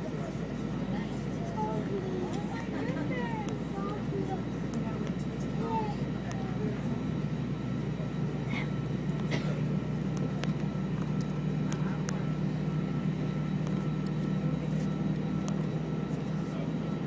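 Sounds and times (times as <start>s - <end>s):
aircraft cabin drone: 0.0s - 17.0s.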